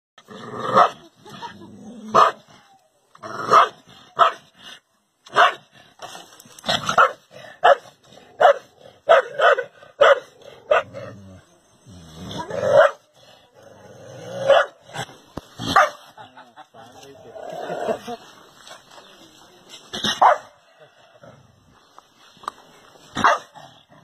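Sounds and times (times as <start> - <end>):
dog barking: 2.1 - 2.4, 3.5 - 4.4, 5.3 - 5.6, 6.9 - 11.0, 12.7 - 13.0, 14.4 - 14.8, 15.7 - 16.0, 20.2 - 20.6, 23.2 - 23.6.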